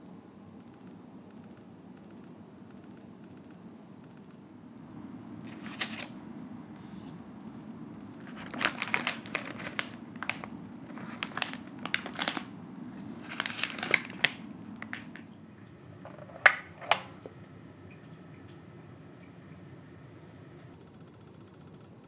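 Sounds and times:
plastic packets crinkling: 5.4 - 6.2, 8.1 - 15.4.

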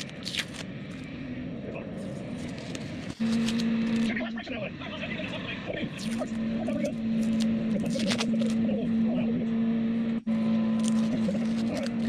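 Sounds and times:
masking tape peeling: 0.0 - 1.0, 2.0 - 4.2, 5.9 - 8.7, 10.7 - 12.0
steady low hum: 0.0 - 12.0.

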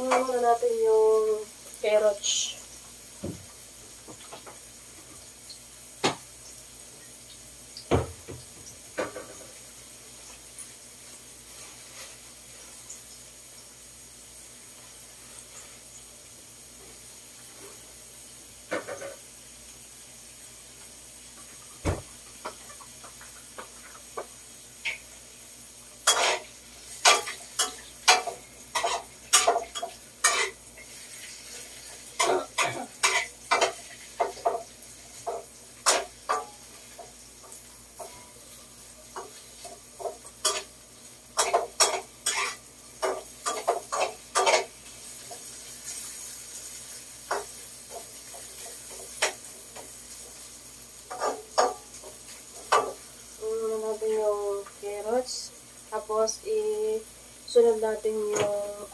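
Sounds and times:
faint sizzle: 0.0 - 58.9
spatula scraping a wok: 26.0 - 34.4, 41.4 - 46.7.

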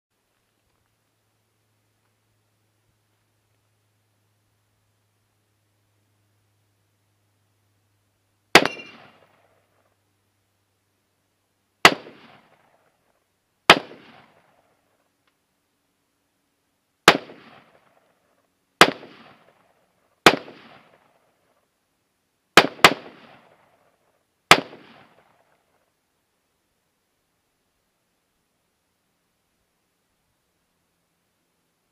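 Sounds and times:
rifle shots with echo: 8.5 - 9.8, 11.8 - 12.9, 13.7 - 14.7, 17.0 - 18.2, 18.8 - 21.2, 22.6 - 23.8, 24.5 - 25.5.

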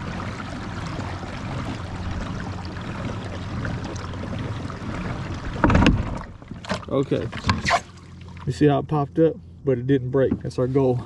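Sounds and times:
water rushing along hull: 0.0 - 11.0.

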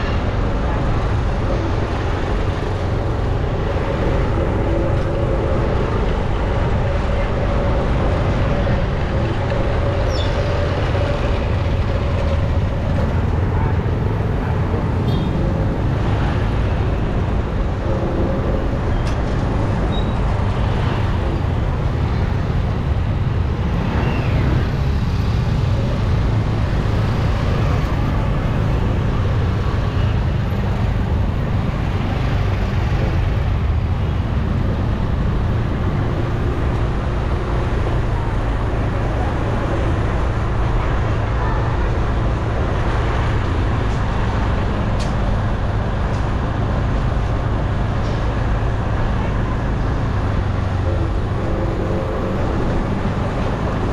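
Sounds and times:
street traffic rumble: 0.0 - 53.9.

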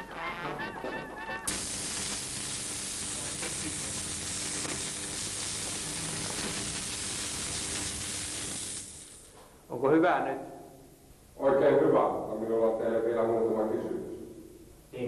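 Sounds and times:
steady hiss: 1.4 - 10.0.

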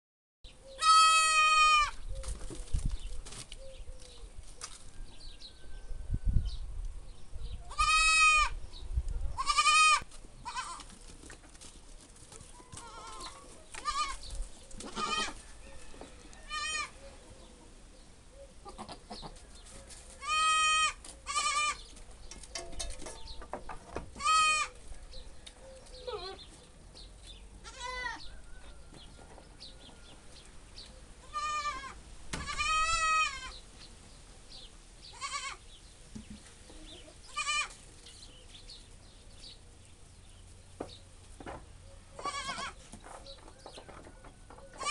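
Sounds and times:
goats bleating: 0.8 - 1.9, 9.4 - 10.9, 12.8 - 14.2, 14.8 - 15.4, 16.5 - 17.0, 20.2 - 21.8, 24.2 - 24.7, 27.6 - 28.2, 31.3 - 33.5, 35.2 - 35.6, 37.3 - 37.8, 42.2 - 42.8.

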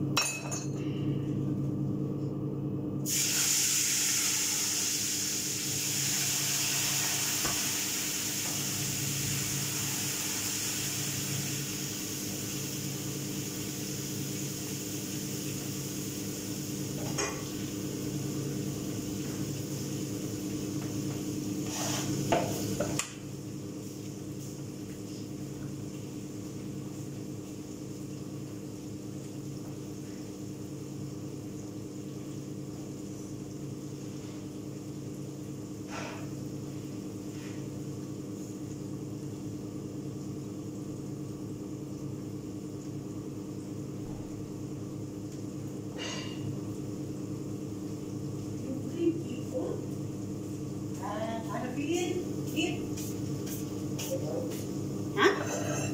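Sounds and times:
range hood fan humming: 0.0 - 55.9
eggplant sizzling in a pan: 3.0 - 31.8.

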